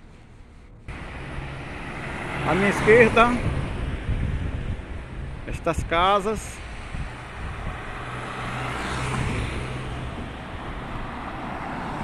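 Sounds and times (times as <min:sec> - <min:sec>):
steady traffic noise: 0:00.0 - 0:12.0
car passing: 0:00.8 - 0:12.0.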